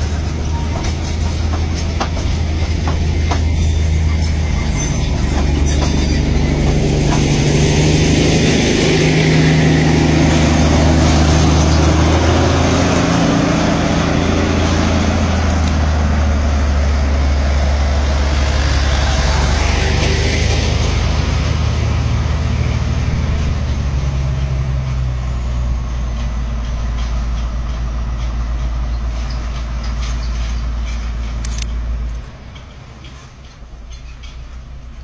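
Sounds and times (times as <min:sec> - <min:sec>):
deep diesel locomotive hum: 0:00.0 - 0:35.0
vehicle engine and road noise: 0:00.0 - 0:35.0.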